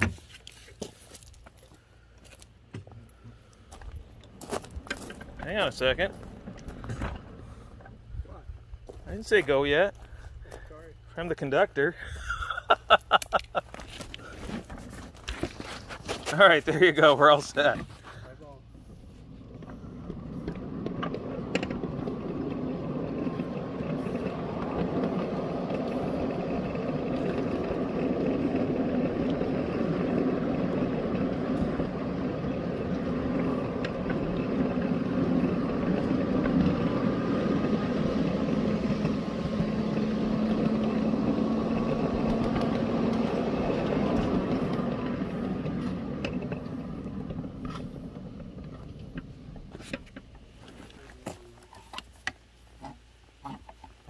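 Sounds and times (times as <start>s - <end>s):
wheels rumbling on rails: 3.0s - 54.0s
miniature locomotive motor running: 18.8s - 50.1s.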